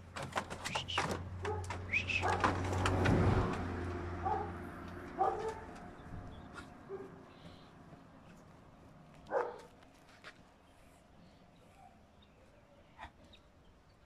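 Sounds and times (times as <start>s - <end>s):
dogs barking and yelping: 1.4s - 3.0s, 3.9s - 7.2s, 9.2s - 9.7s.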